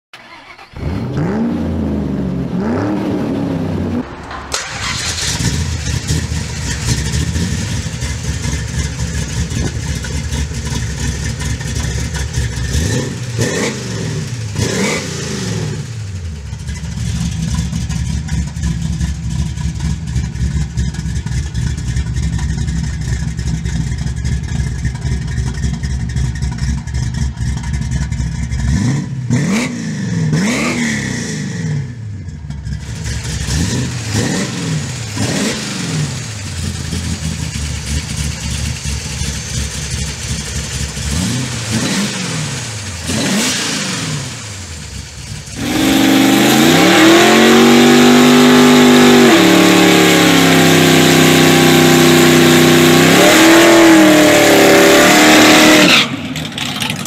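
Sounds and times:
car engine revving and idling: 0:00.2 - 0:57.0.

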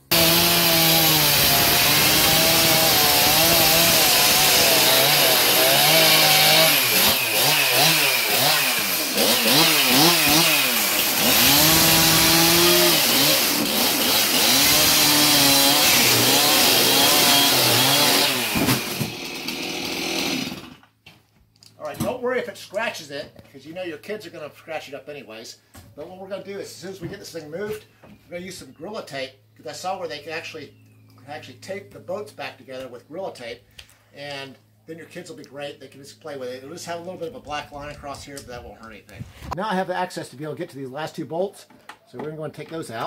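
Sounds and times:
chainsaw cutting particle board: 0:00.0 - 0:20.8.

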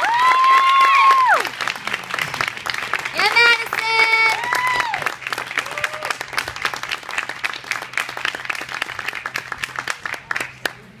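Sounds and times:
spectators applauding: 0:00.0 - 0:11.0.

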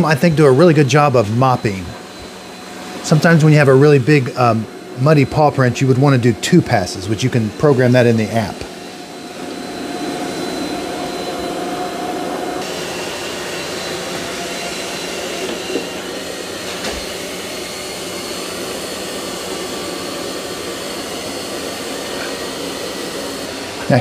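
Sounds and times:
robot vacuum fan whirring: 0:00.0 - 0:24.0.

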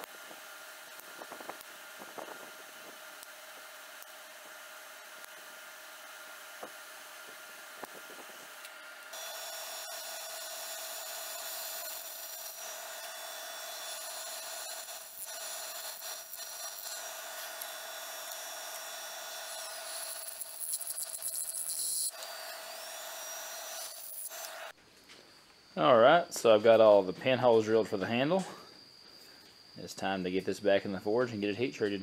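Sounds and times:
drill press cutting steel: 0:08.4 - 0:24.7
high cutting squeal: 0:09.1 - 0:24.7.

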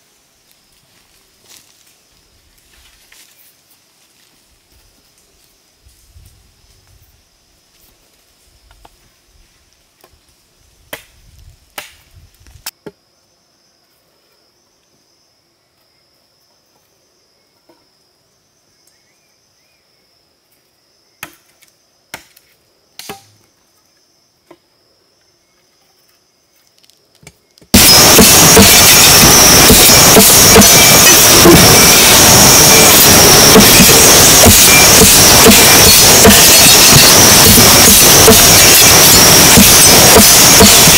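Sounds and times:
machete chopping wooden stake: 0:11.8 - 0:12.0, 0:23.0 - 0:23.3
insects buzzing: 0:27.4 - 0:40.9
loud rushing noise: 0:27.8 - 0:40.9.

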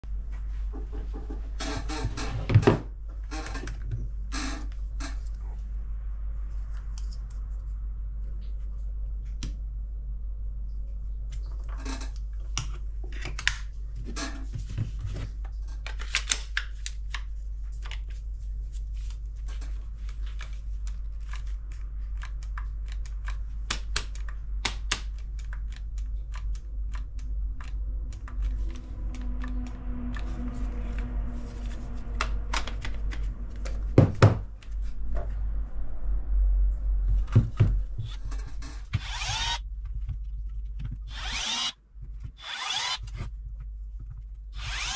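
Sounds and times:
steady low hum: 0:16.8 - 0:44.9.

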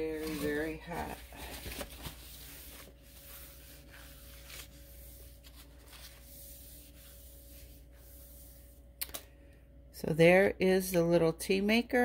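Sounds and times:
low steady hum: 0:00.0 - 0:12.0
paper towel rubbing on wood: 0:00.1 - 0:08.8.

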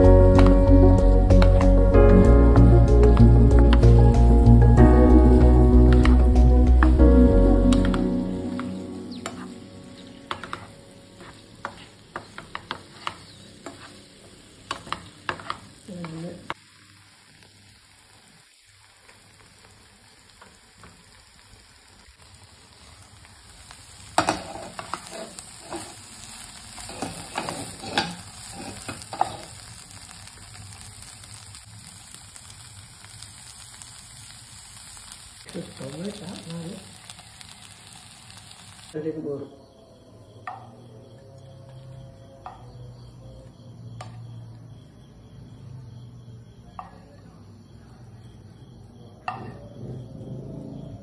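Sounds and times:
frying sizzle: 0:00.0 - 0:39.5, 0:40.3 - 0:51.0
wooden spatula scraping a pan: 0:10.3 - 0:14.1, 0:14.7 - 0:15.7, 0:24.2 - 0:26.1, 0:26.7 - 0:29.5.

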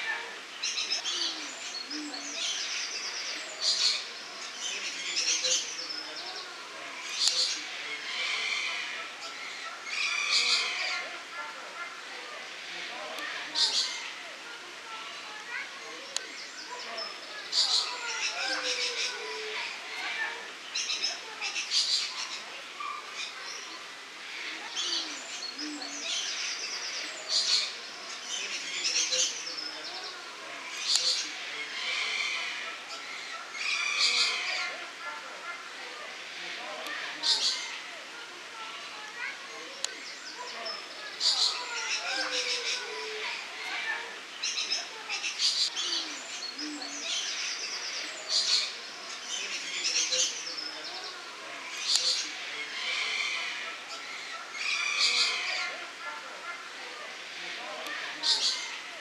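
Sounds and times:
lorikeets chattering: 0:00.0 - 0:59.0
parrots chattering and screeching: 0:07.0 - 0:11.1, 0:30.7 - 0:34.8, 0:41.2 - 0:46.2, 0:48.3 - 0:55.8.

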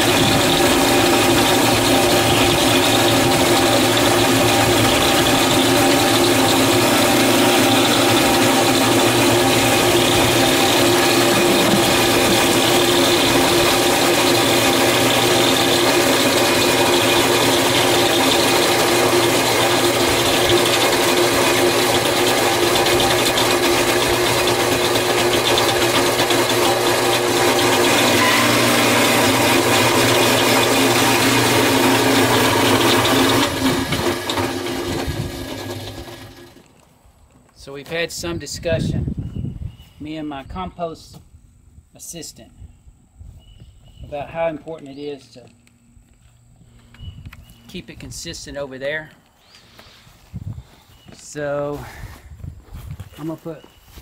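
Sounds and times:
cement mixer drum rattling: 0:00.0 - 0:36.6
motor hum: 0:00.0 - 0:36.8.

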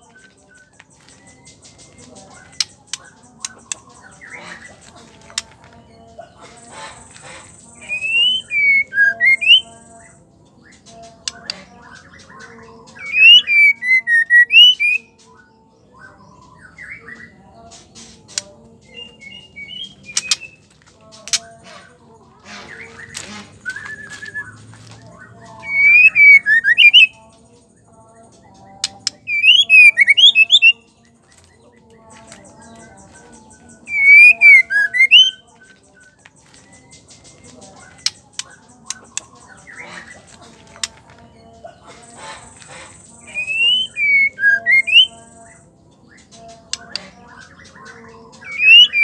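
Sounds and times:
bird chips and clicks: 0:00.0 - 0:05.8, 0:17.7 - 0:21.6, 0:28.3 - 0:41.2, 0:46.2 - 0:49.0
bird singing fluting whistles: 0:07.9 - 0:09.6, 0:43.4 - 0:45.1.

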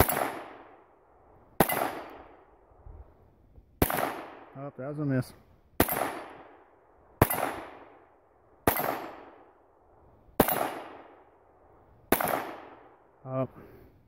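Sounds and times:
pistol shots: 0:00.0 - 0:00.8, 0:01.6 - 0:02.5, 0:03.8 - 0:04.6, 0:05.8 - 0:09.6, 0:10.4 - 0:11.3, 0:12.1 - 0:13.0.

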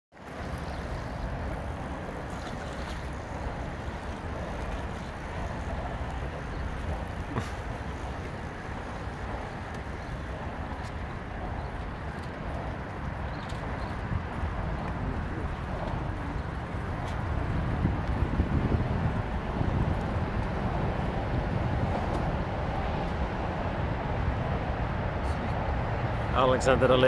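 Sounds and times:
boat rumble: 0:00.1 - 0:27.0
water wash: 0:00.1 - 0:27.0.

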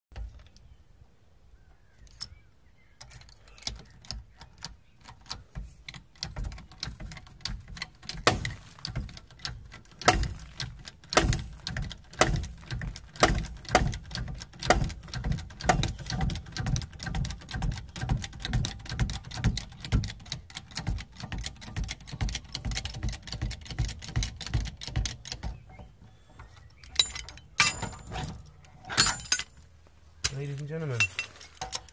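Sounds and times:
hand pump clicking: 0:03.0 - 0:28.3
metallic clinks: 0:26.8 - 0:29.6.

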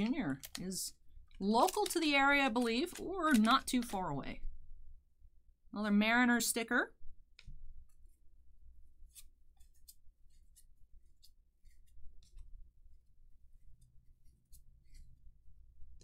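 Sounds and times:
cards being flipped through: 0:01.6 - 0:03.9, 0:09.0 - 0:12.6.

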